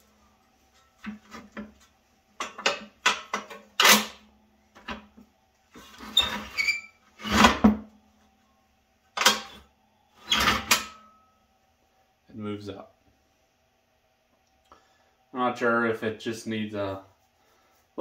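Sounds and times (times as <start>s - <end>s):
metal squeak: 5.9s - 7.4s.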